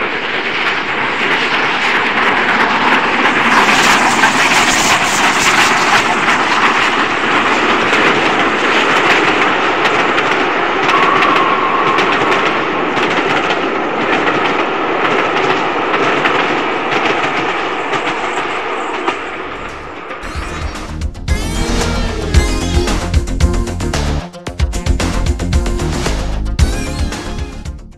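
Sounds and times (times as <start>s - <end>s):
model train rumbling: 0.0s - 20.3s
wheels clicking over rail joints: 0.5s - 10.9s
high wheel squeal: 10.9s - 13.7s
music: 19.6s - 27.9s.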